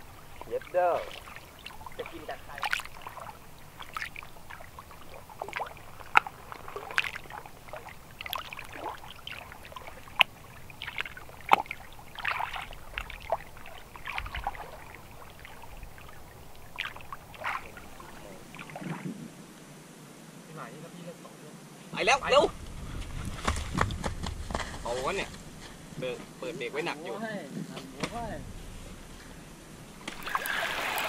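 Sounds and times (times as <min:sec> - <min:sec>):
water lapping and splashing: 0:00.0 - 0:20.2, 0:28.1 - 0:31.0.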